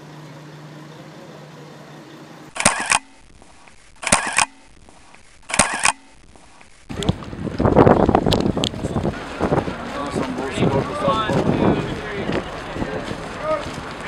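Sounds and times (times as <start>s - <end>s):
steady low hum: 0.0s - 14.0s
camera shutter clicks: 2.5s - 6.7s.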